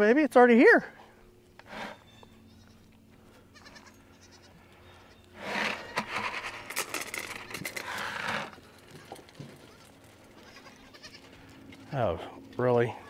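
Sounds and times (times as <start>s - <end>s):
goats bleating: 1.9s - 6.1s, 7.4s - 11.8s.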